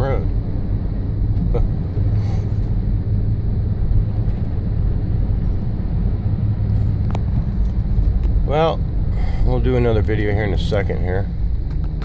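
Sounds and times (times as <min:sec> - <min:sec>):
truck rumbling on snow: 0:00.0 - 0:12.0.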